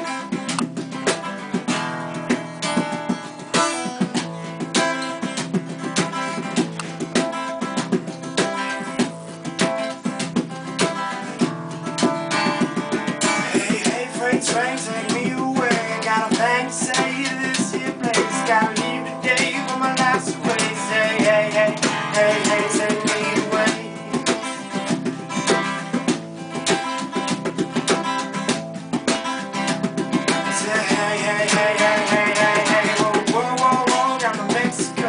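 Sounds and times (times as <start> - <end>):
acoustic guitar strummed: 0.0 - 35.0
hands slapping box drum: 0.0 - 35.0
man singing: 13.2 - 24.3, 30.4 - 35.0.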